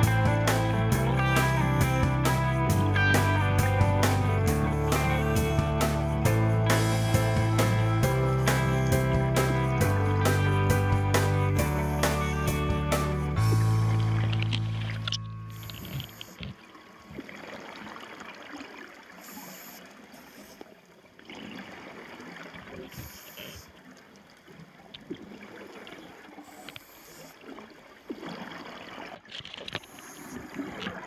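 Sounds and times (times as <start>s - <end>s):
watery hiss and gurgle: 19.0s - 20.7s, 21.5s - 23.8s, 25.4s - 28.7s.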